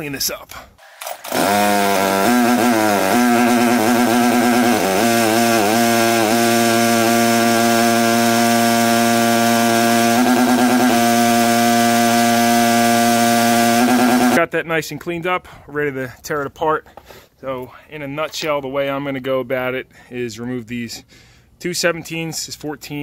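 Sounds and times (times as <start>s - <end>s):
pressure washer engine running: 0.8s - 14.4s.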